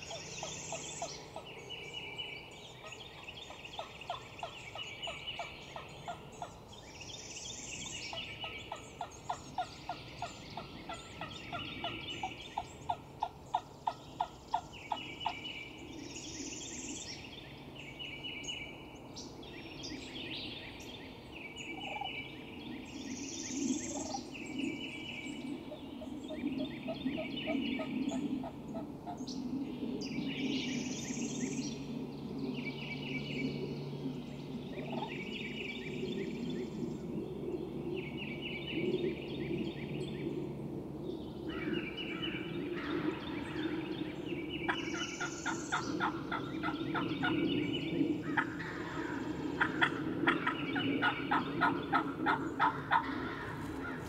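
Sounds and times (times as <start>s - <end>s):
turkeys gobbling: 44.7s - 47.3s, 48.4s - 54.0s.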